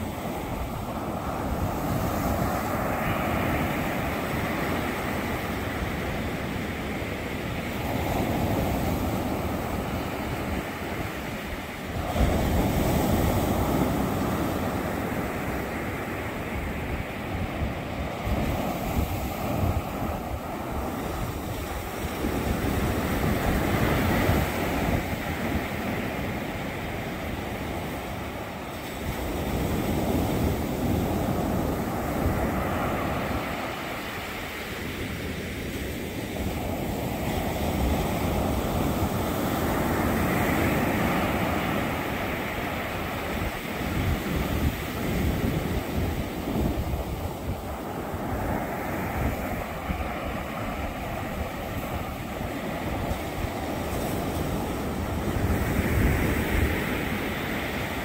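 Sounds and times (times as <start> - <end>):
ocean waves washing up a beach: 0.0 - 58.0.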